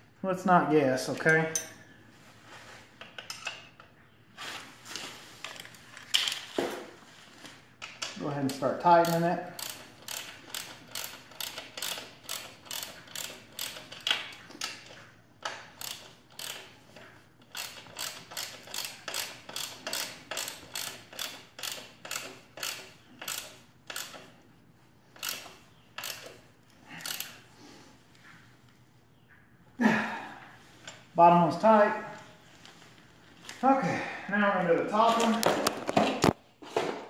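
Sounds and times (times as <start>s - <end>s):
socket ratchet clicking: 7.8s - 14.8s, 15.4s - 16.7s, 17.5s - 24.3s, 25.2s - 26.4s, 27.0s - 27.4s.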